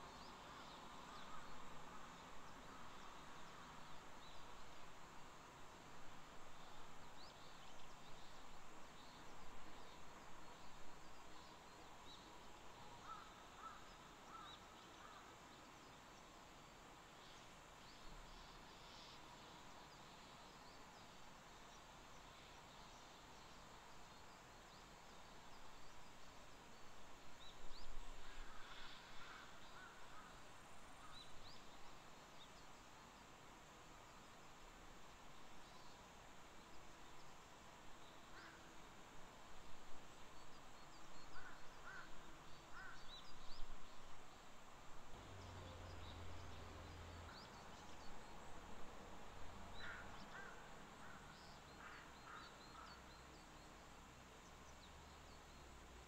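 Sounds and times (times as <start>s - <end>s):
soft steady hiss: 0.0s - 56.0s
crows cawing in the distance: 13.0s - 15.3s, 28.2s - 30.4s, 41.3s - 43.1s, 49.8s - 53.0s.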